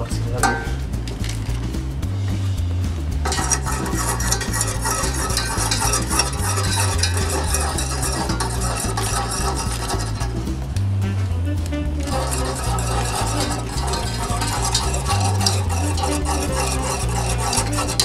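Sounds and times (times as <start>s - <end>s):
whisk scraping a saucepan: 3.2s - 10.7s, 12.0s - 18.0s.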